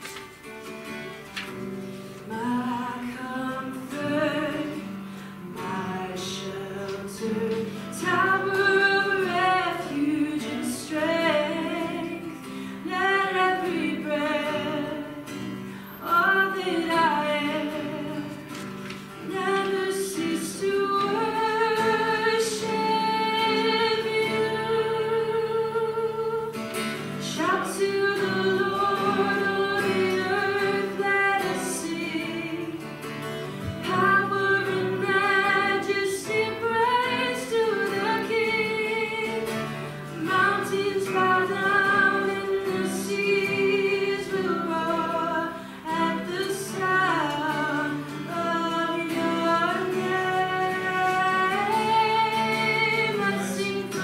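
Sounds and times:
strummed acoustic guitar: 0:00.0 - 0:54.0
person singing with vibrato: 0:01.8 - 0:54.0.

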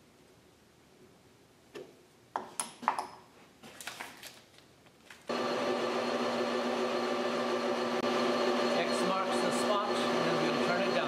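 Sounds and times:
lathe humming: 0:05.3 - 0:11.0.

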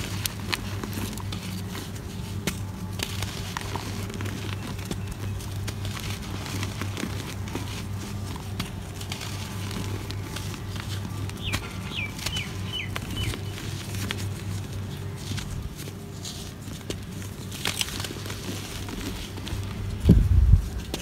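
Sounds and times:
dry material crunching in hand: 0:00.0 - 0:21.0
powder sifting: 0:00.0 - 0:21.0
steady low hum: 0:00.0 - 0:21.0
bird chirping: 0:11.2 - 0:13.8.

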